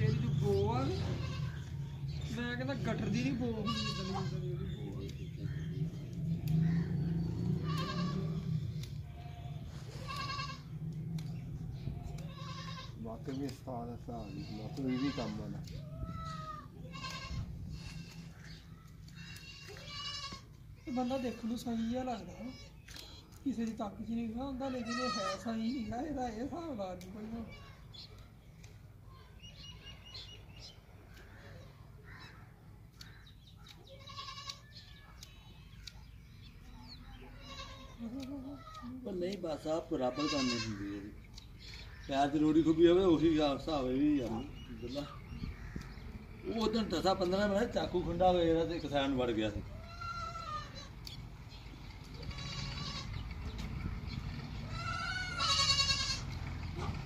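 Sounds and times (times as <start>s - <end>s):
goat bleating: 0.0s - 1.9s, 2.8s - 5.3s, 6.9s - 23.6s, 24.6s - 28.2s, 33.8s - 36.0s, 36.6s - 46.0s, 46.6s - 51.1s, 52.1s - 53.2s, 54.7s - 56.9s
small birds chirping: 0.0s - 57.0s.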